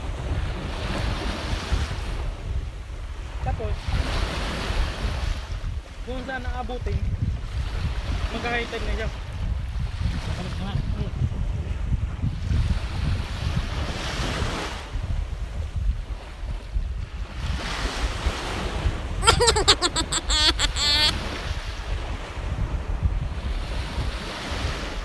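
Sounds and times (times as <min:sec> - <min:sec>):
wind buffeting microphone: 0:00.0 - 0:19.2, 0:21.1 - 0:25.0
short wavering pitched cry: 0:19.2 - 0:21.2.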